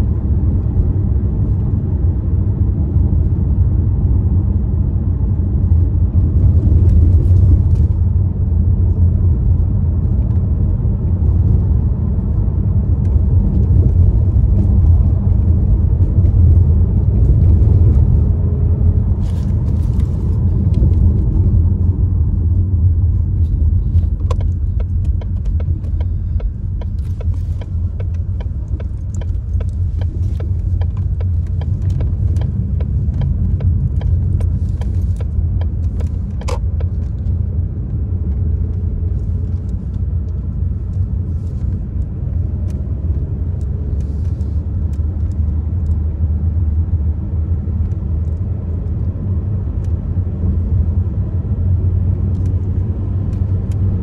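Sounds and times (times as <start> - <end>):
car engine and road rumble: 0.0 - 54.0.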